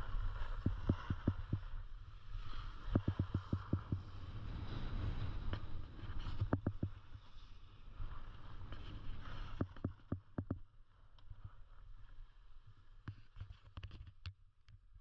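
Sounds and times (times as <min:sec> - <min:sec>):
skis sliding on snow: 0:00.0 - 0:10.0
wind rumble on microphone: 0:00.0 - 0:14.2
sharp clicks and knocks: 0:09.6 - 0:10.6.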